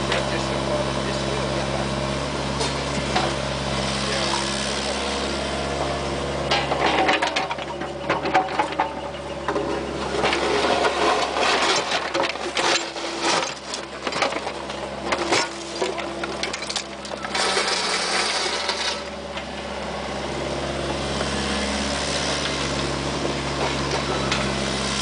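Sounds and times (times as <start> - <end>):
diesel engine running: 0.0 - 25.0
steel bucket scraping asphalt: 6.5 - 19.6.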